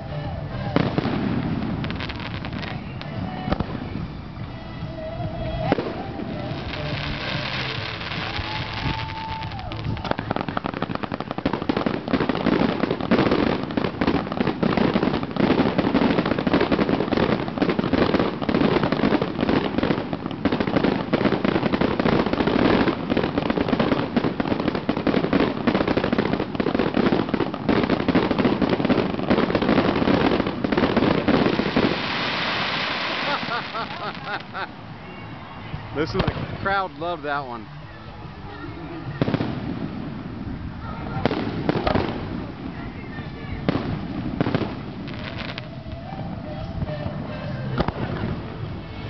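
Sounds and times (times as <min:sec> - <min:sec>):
firework whistle: 0:00.0 - 0:49.0
firework launch thumps and crackling: 0:05.6 - 0:34.7, 0:36.0 - 0:37.6, 0:41.1 - 0:42.8.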